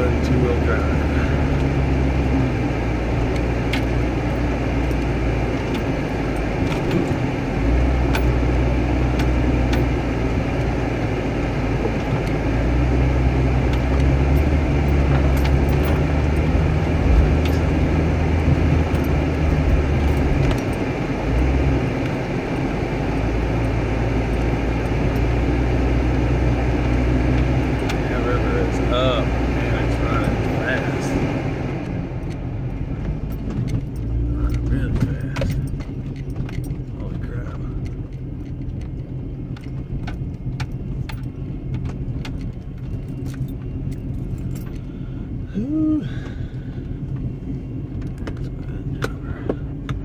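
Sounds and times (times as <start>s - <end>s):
car engine revving: 0.0s - 50.0s
knocks and rattles: 13.6s - 22.3s, 32.2s - 44.8s.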